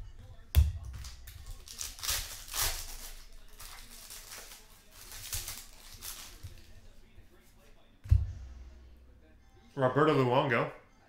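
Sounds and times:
foil wrapper crinkling and tearing: 0:01.0 - 0:06.7.

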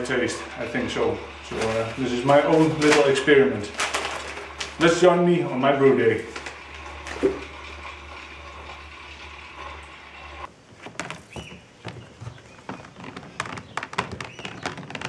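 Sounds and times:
stir plate humming: 0:00.0 - 0:10.5.

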